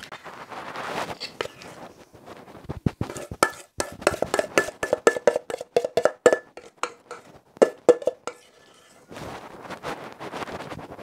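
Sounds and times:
metal spoon clinking on metal pot: 0:03.1 - 0:09.0.

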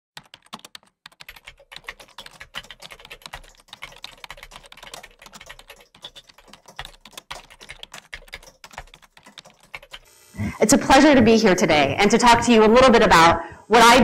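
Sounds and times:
computer keyboard typing: 0:00.2 - 0:10.2.

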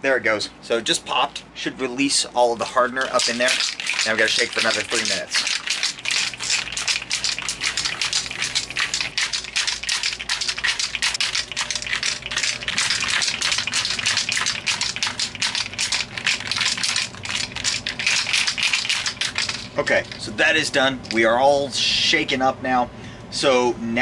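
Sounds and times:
aerosol can rattling when shaken: 0:02.5 - 0:21.4.

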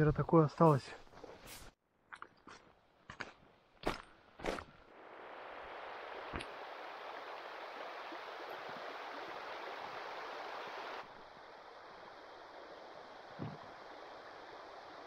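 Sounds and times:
river water rushing: 0:05.0 - 0:15.0.

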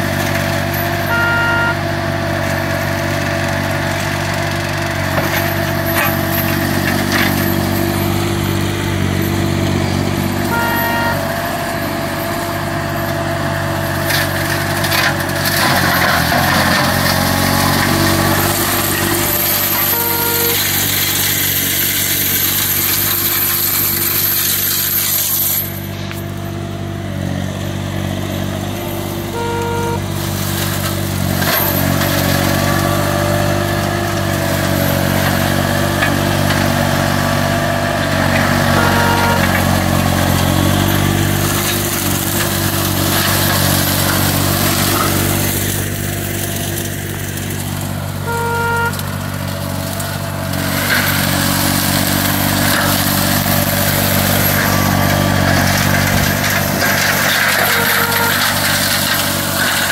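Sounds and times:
mower engine running under load: 0:00.0 - 0:59.9
mulching head shredding brush: 0:00.0 - 0:59.9
short beeps: 0:01.1 - 0:01.9, 0:10.4 - 0:11.3, 0:19.4 - 0:20.8, 0:29.3 - 0:30.1, 0:38.8 - 0:39.6, 0:48.3 - 0:49.0, 0:57.6 - 0:58.6.

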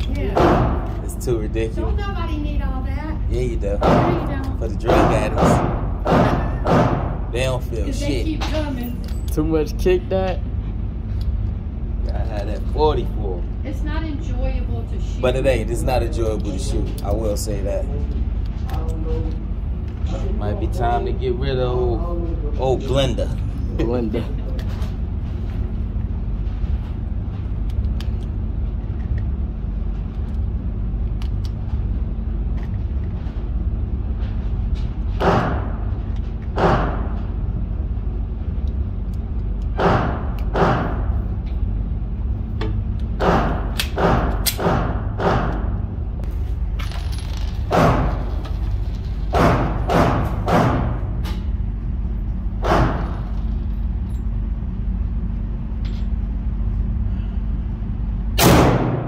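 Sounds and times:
steady low hum: 0:00.0 - 0:59.0
pistol gunshots echoing: 0:04.9 - 0:07.2.

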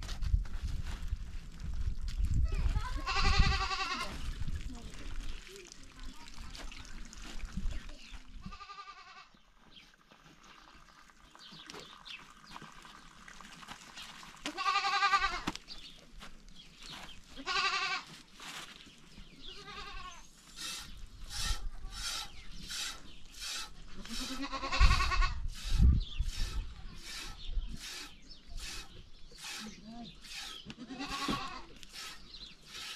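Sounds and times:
sheep bleating: 0:02.9 - 0:04.1, 0:08.5 - 0:09.3, 0:14.5 - 0:15.5, 0:17.4 - 0:18.0, 0:19.5 - 0:20.2, 0:30.8 - 0:31.7.

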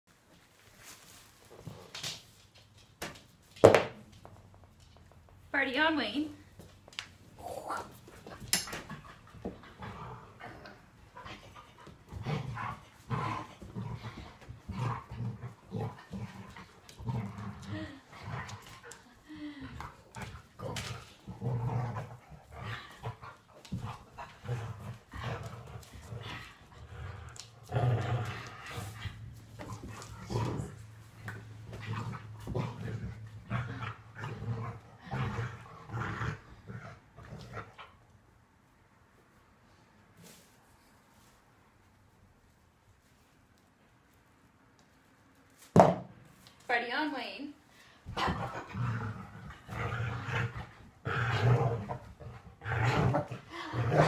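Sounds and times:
scuffling of paws and hands: 0:00.1 - 0:03.0
dog growling: 0:07.4 - 0:38.0, 0:48.1 - 0:54.0.

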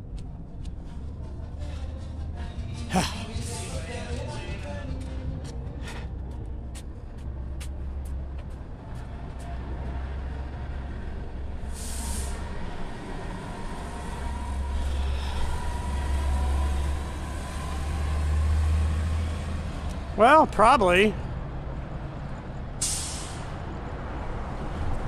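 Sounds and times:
road vehicles rumbling: 0:00.0 - 0:25.0
short sharp hiss: 0:22.8 - 0:23.5.

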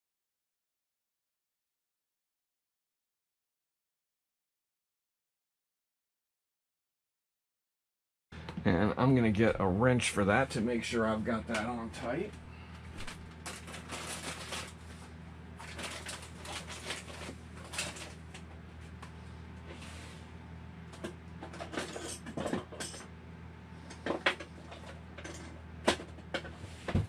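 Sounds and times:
low steady hum: 0:08.4 - 0:27.0
tools clattering: 0:21.0 - 0:23.1, 0:23.9 - 0:26.6.

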